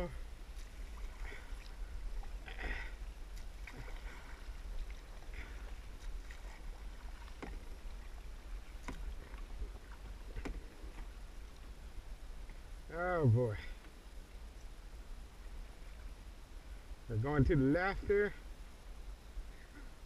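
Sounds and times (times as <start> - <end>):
paddle splashing in water: 0.6 - 11.7
paddle clicks and knocks: 7.2 - 7.7, 8.8 - 9.6, 10.3 - 11.1.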